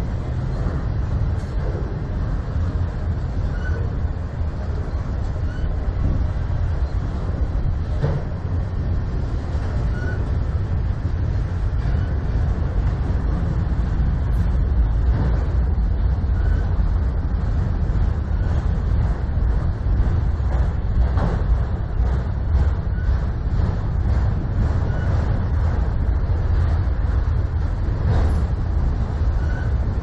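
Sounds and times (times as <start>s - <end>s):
train wheels rumbling on rail: 0.0s - 30.0s
faint wheel squeals: 3.5s - 3.9s, 5.4s - 5.8s, 9.9s - 10.3s, 16.3s - 16.8s, 24.9s - 25.2s, 29.4s - 29.8s.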